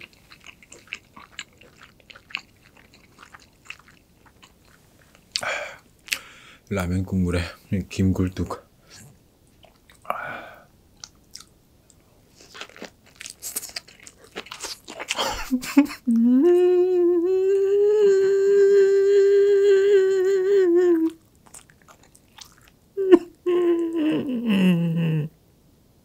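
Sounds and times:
man chewing with crunching bites: 0.0 - 6.3, 8.9 - 10.2, 11.0 - 15.8, 21.0 - 22.9.

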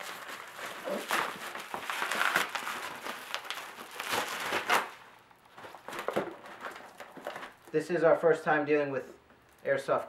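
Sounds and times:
bubble wrap crinkling: 0.0 - 7.8.

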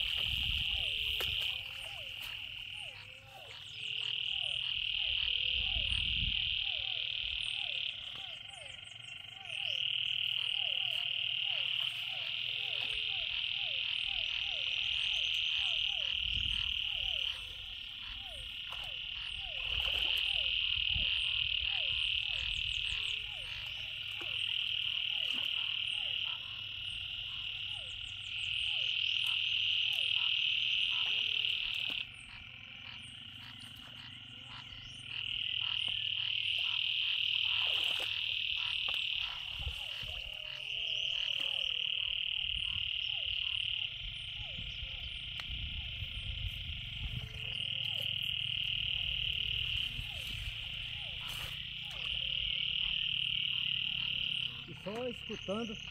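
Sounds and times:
frogs buzzing trills: 0.0 - 55.9
frogs croaking: 0.0 - 55.9
splashes of wading in water: 18.7 - 20.5.

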